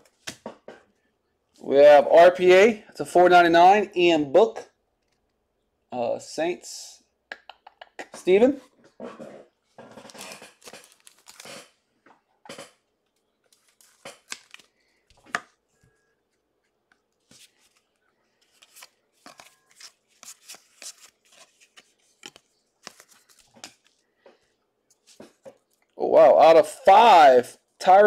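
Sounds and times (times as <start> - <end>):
trading cards rustling and tapping: 9.1 - 25.9.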